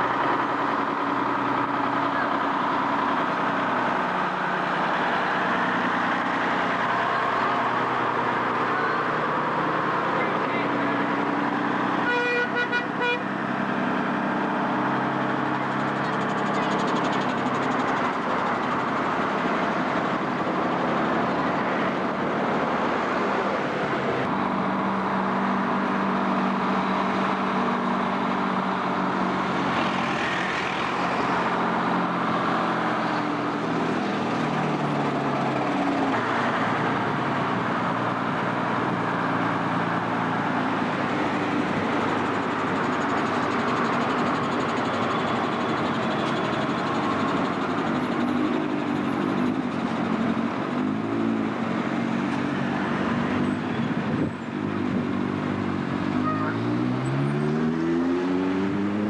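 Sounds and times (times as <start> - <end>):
truck diesel engine pulling off: 0.0 - 12.1, 12.9 - 59.0
street traffic: 0.0 - 59.0
vehicle horn toot: 12.0 - 13.3.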